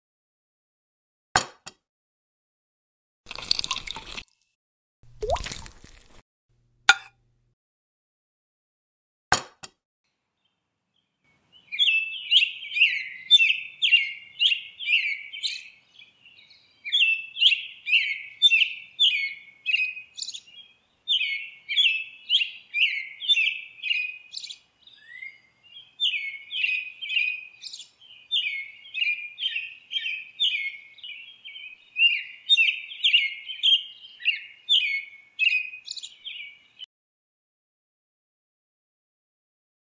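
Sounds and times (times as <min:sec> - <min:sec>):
high chirping calls: 0:11.6 - 0:36.7.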